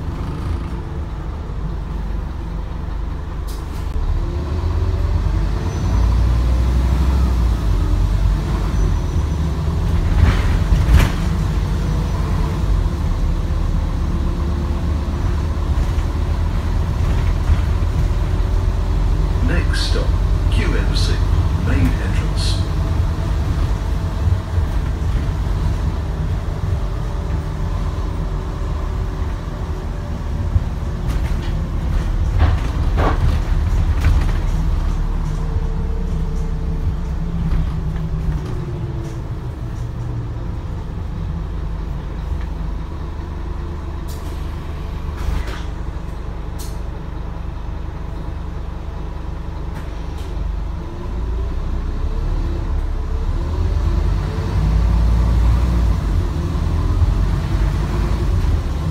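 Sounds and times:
bus diesel engine running: 0.0 - 58.9.

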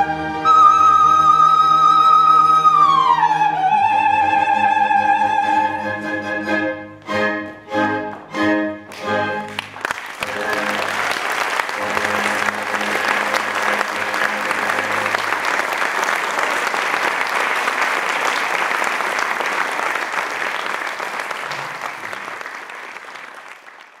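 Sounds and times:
audience applauding: 8.9 - 24.0.

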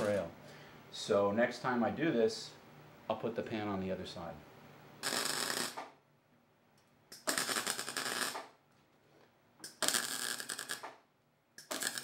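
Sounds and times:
welding arc crackling: 0.0 - 0.3, 5.0 - 5.9, 7.1 - 8.5, 9.6 - 11.0, 11.6 - 12.0.

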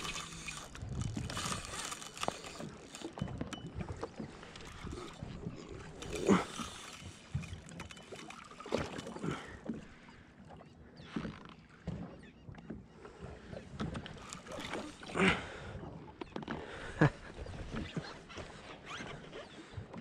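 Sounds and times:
small waves slapping against hull: 0.0 - 20.0.

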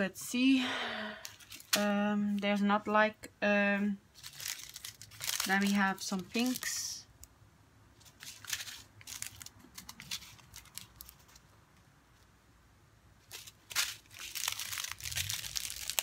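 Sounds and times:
plastic bags crinkling: 1.2 - 2.4, 4.1 - 7.0, 8.0 - 11.5, 13.2 - 16.0.

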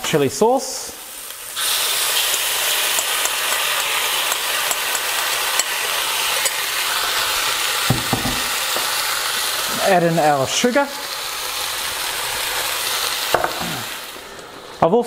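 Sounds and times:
sauce sizzling in a wok: 0.6 - 15.0
low knock: 7.9 - 8.5.

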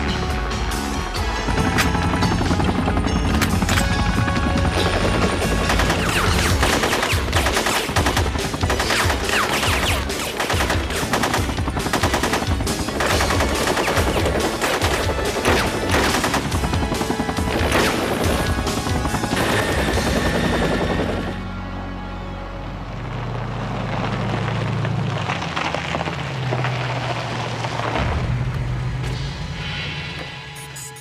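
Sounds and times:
helicopter rotor noise: 0.9 - 21.5
rapid automatic gunfire: 4.5 - 21.4.

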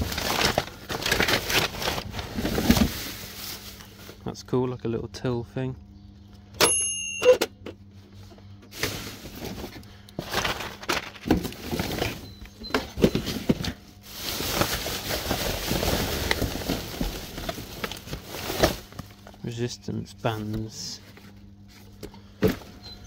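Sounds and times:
plastic crinkling and rustling: 0.0 - 4.2, 8.7 - 12.3, 12.9 - 19.4.

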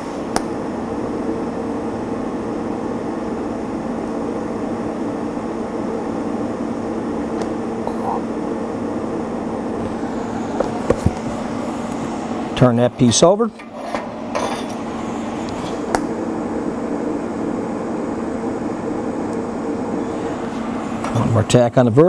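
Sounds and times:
welding arc hum and hiss: 0.0 - 22.0.

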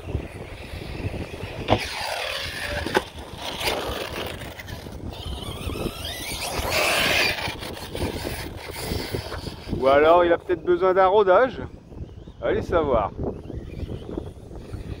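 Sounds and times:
toy truck motor whining: 0.0 - 10.2, 13.2 - 15.0.

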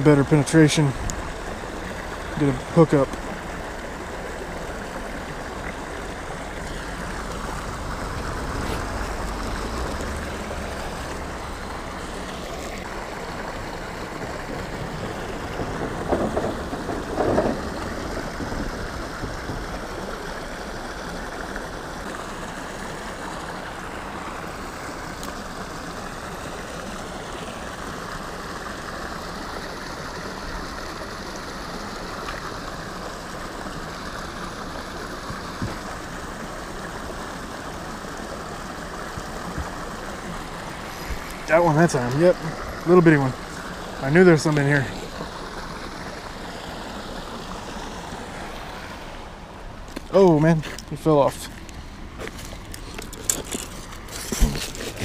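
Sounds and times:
water rushing over spillway: 0.0 - 55.0.

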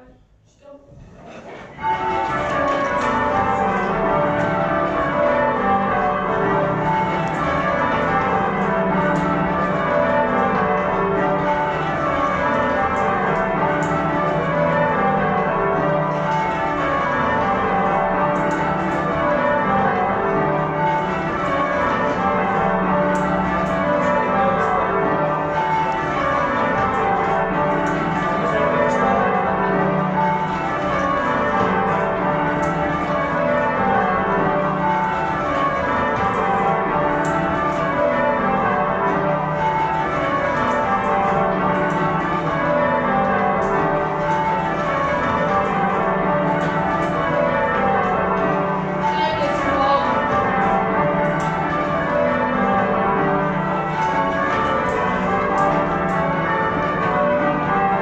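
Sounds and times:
church bells ringing changes: 1.7 - 58.0.

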